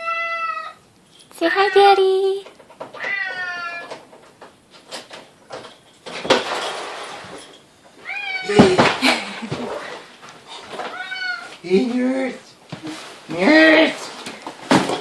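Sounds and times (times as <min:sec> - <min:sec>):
cat meowing: 0:00.0 - 0:00.8, 0:03.0 - 0:04.0, 0:08.0 - 0:08.7, 0:10.9 - 0:11.6.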